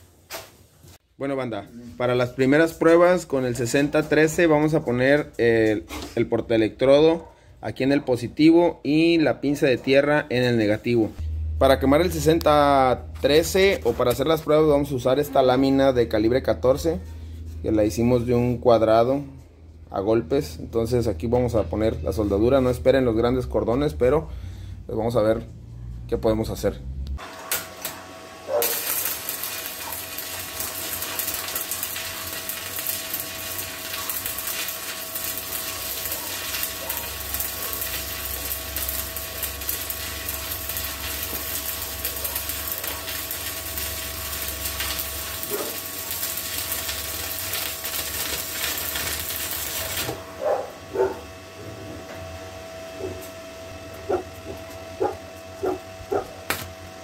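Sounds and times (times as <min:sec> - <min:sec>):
welding arc crackling and sizzling: 0:02.0 - 0:05.9, 0:10.6 - 0:16.6, 0:27.1 - 0:50.3, 0:55.6 - 0:56.7.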